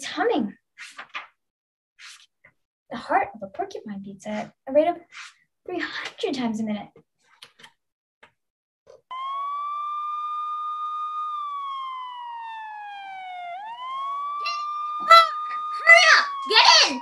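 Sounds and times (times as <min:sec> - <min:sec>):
siren wailing: 0:09.1 - 0:17.0.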